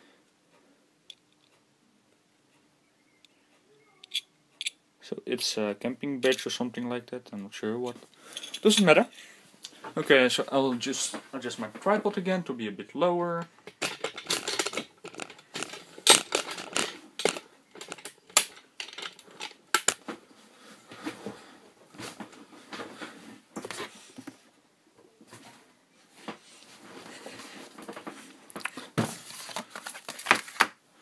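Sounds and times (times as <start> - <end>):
rustling: 13.5 - 24.5
tripod clicks and knocks: 13.7 - 19.2.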